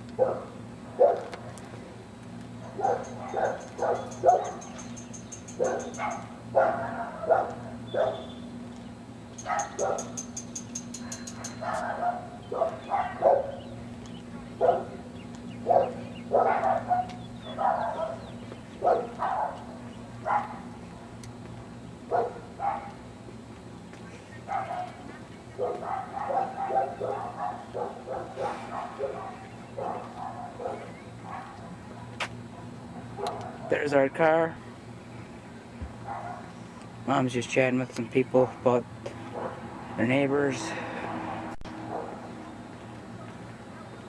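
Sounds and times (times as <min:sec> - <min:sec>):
dog barking: 0:00.2 - 0:01.3, 0:02.6 - 0:04.7, 0:05.6 - 0:08.3, 0:09.4 - 0:10.2, 0:11.3 - 0:13.6, 0:14.6 - 0:15.0, 0:15.6 - 0:20.6, 0:22.1 - 0:23.0, 0:24.5 - 0:25.0, 0:25.6 - 0:31.7, 0:32.9 - 0:33.8, 0:36.0 - 0:36.5, 0:39.3 - 0:39.6, 0:41.9 - 0:42.3.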